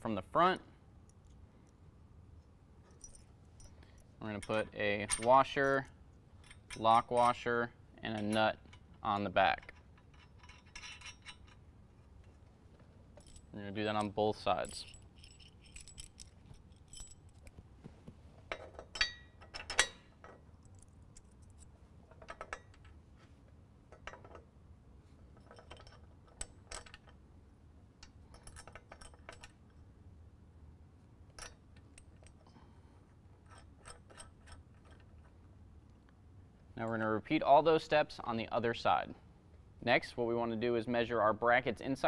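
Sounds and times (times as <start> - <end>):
metal washers and nuts clinking: 2.8 - 17.6, 18.4 - 23.0, 25.2 - 27.2, 28.0 - 29.9, 31.3 - 32.6, 33.4 - 35.4.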